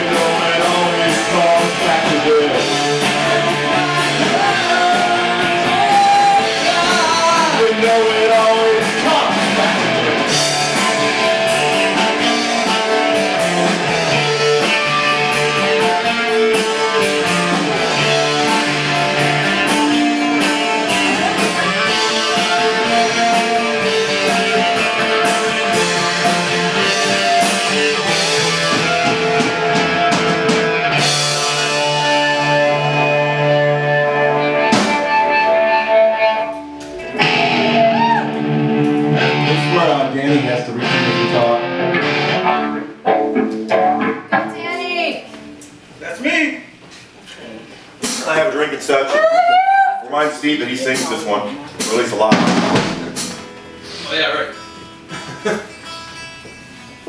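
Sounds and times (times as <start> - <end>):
electric guitar: 0.0 - 46.0, 50.8 - 57.0
rock band playing live: 0.0 - 46.0, 47.9 - 48.7, 50.8 - 57.0
bass guitar: 0.0 - 46.1, 47.0 - 57.0
percussive beat: 51.0 - 53.8.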